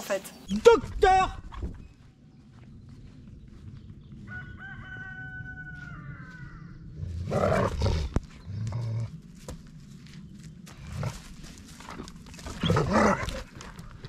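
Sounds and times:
rooster crowing: 4.1 - 6.9.

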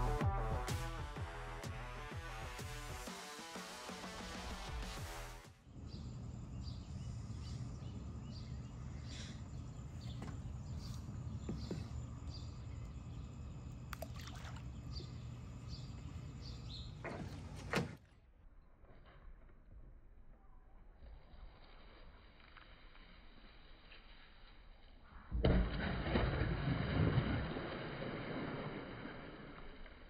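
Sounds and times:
low hum and hiss: 5.6 - 17.7.

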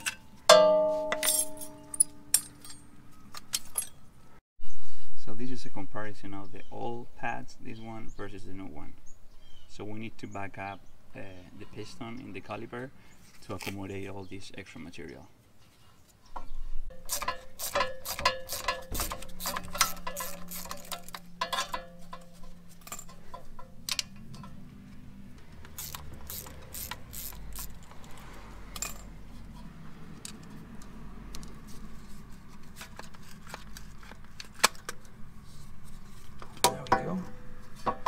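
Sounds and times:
ratchet wrench clicking: 16.9 - 21.8, 25.6 - 29.1
metal clicks and knocks: 16.9 - 29.1, 36.4 - 38.0.

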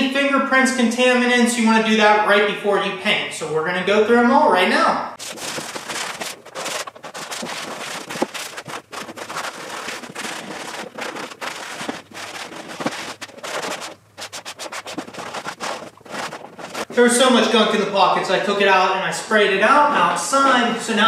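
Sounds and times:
scouring pad scrubbing plastic: 5.2 - 17.5.

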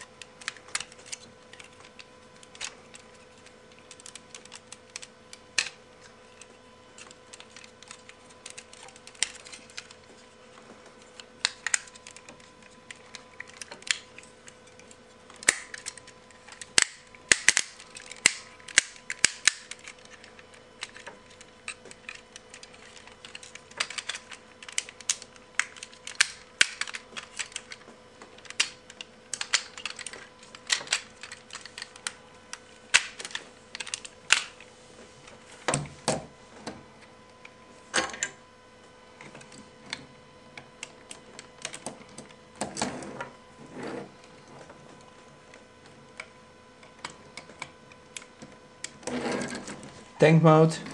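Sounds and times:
plastic toy parts clicking: 2.4 - 10.0, 11.1 - 27.8, 28.4 - 32.2.

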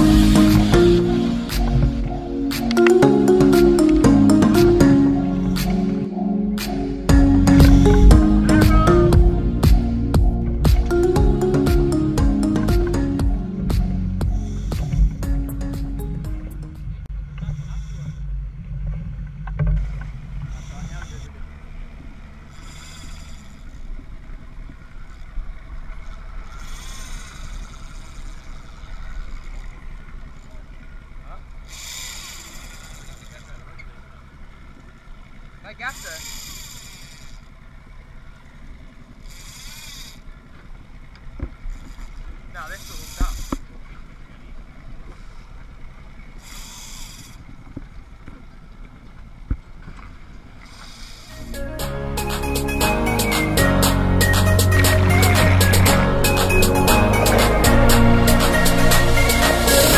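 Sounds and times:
boat motor rumbling: 0.0 - 59.9
wind and waves: 0.0 - 59.9
fishing reel whirring: 22.5 - 23.9, 26.4 - 29.4, 31.7 - 33.6, 35.9 - 37.6, 39.2 - 40.3, 46.4 - 47.4.

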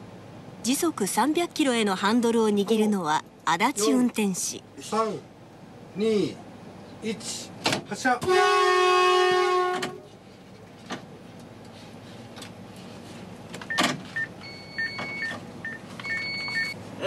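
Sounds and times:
train cab running hum: 0.0 - 17.0
longer beep tones: 14.4 - 16.8.

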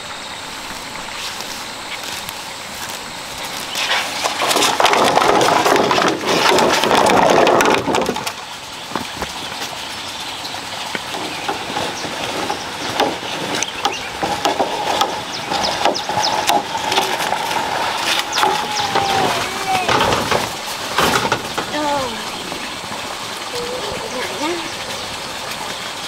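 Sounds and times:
bamboo poles scraping over dirt: 0.0 - 9.8, 10.9 - 24.7
wooden knocks and clicks: 4.2 - 9.4, 10.9 - 21.8.

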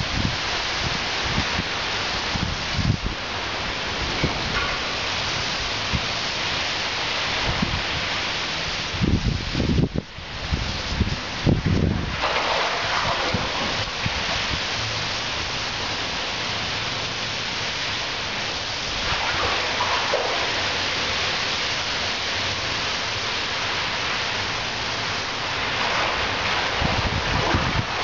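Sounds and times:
rain falling: 0.0 - 28.0
running water: 9.9 - 28.0.

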